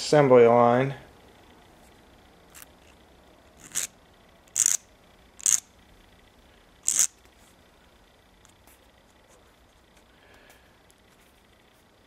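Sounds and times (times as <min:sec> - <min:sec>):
hand file scraping metal: 0:03.6 - 0:03.9.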